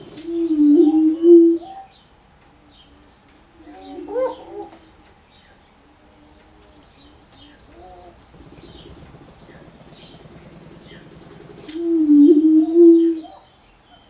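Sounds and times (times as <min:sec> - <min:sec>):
low rapid rattling: 0:08.2 - 0:12.1.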